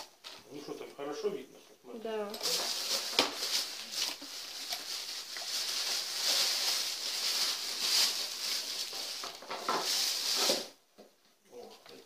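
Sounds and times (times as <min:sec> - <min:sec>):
plastic bag crinkling: 0:02.3 - 0:10.8.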